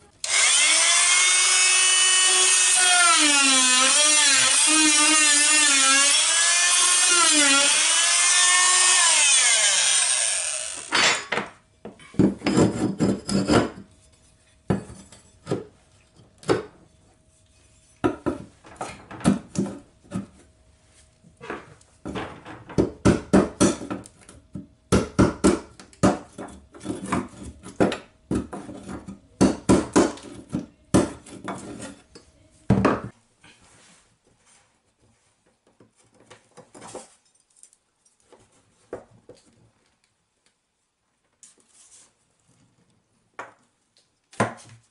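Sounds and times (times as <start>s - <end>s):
power tool motor winding down: 0.2s - 10.9s.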